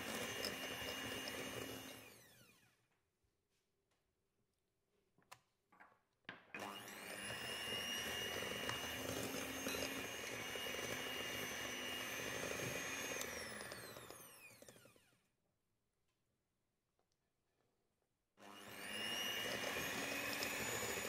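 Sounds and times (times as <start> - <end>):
electric hand mixer whining: 0.0 - 2.9, 6.6 - 15.3, 18.4 - 21.0.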